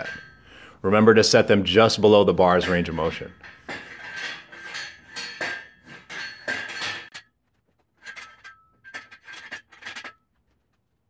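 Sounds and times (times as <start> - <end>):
metal safety pins clanking: 0.0 - 0.6, 1.8 - 7.3, 8.0 - 10.3.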